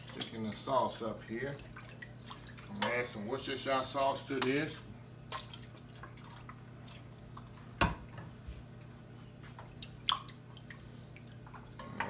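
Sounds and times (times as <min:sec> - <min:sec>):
sauce dripping and splashing: 0:01.4 - 0:02.9, 0:05.2 - 0:07.6.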